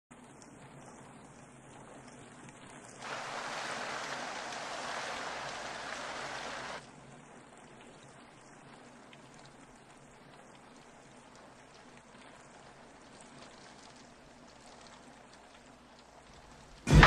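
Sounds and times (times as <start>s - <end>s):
faint background hiss: 0.1s - 17.0s
small ticks: 7.6s - 16.7s.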